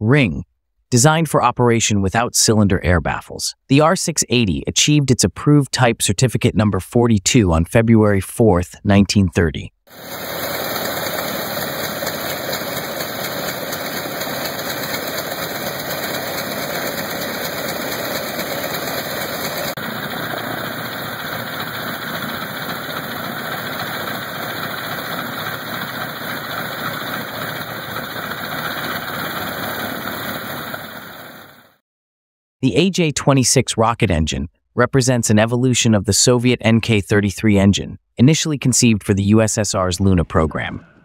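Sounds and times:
radial aircraft engine running: 9.9 - 31.8.

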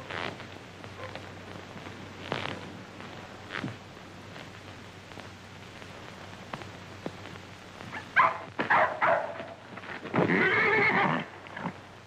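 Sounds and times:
film soundtrack hiss: 0.0 - 12.0
dog barking: 1.0 - 1.2, 8.2 - 9.5.

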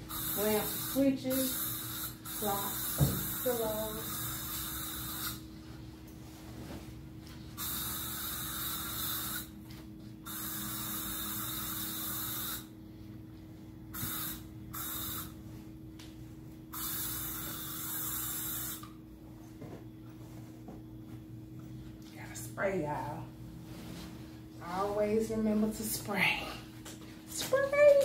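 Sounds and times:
aerosol spray can hissing: 0.1 - 5.4, 10.3 - 12.7, 14.0 - 15.3, 16.8 - 18.9.

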